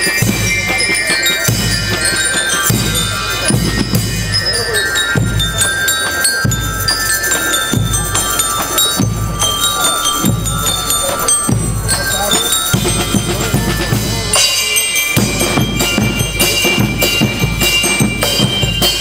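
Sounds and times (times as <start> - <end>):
bell-lyre melody: 0.0 - 19.0
bass drum beat: 7.7 - 14.4, 15.2 - 19.0.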